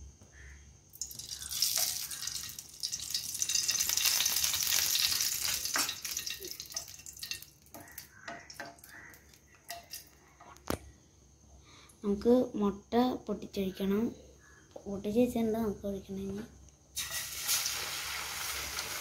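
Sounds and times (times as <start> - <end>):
oil sizzling in a frying pan: 0.9 - 10.0, 17.0 - 19.0.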